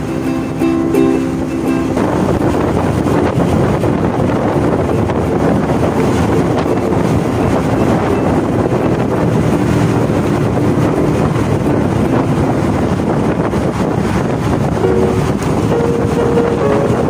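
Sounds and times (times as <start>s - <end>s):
motorcycle running: 0.0s - 17.0s
road noise: 0.0s - 17.0s
ukulele music: 0.0s - 17.0s
wind rushing over microphone: 0.0s - 17.0s.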